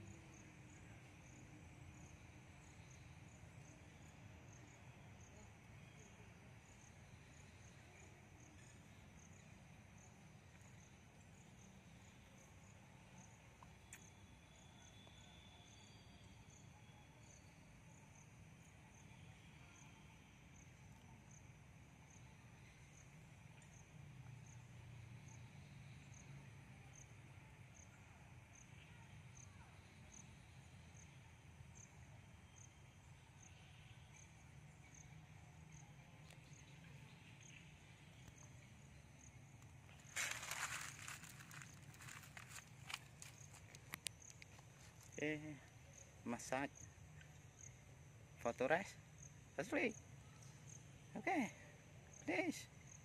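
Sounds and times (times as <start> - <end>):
insect chirping: 0.0 - 53.0.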